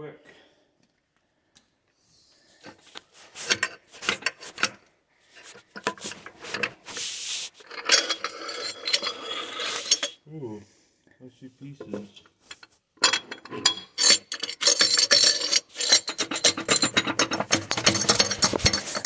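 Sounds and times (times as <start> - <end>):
metal parts knocking and clinking: 3.4 - 4.8, 7.7 - 10.2, 11.9 - 19.0
clothing rubbing on microphone: 5.3 - 7.7.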